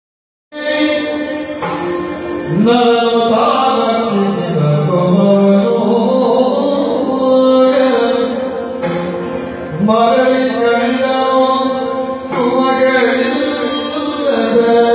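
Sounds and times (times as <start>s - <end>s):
man singing: 0.5s - 14.9s
drum strokes: 1.6s - 2.8s, 8.8s - 9.9s.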